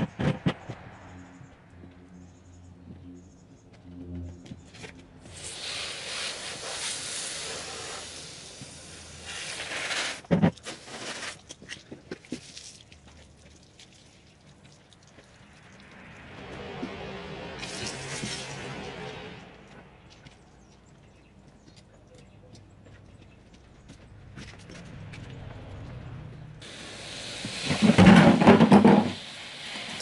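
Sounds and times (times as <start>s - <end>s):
water from hose hissing: 5.3s - 11.5s, 13.7s - 19.5s, 26.6s - 30.0s
wet clicks and splashes: 11.4s - 16.1s.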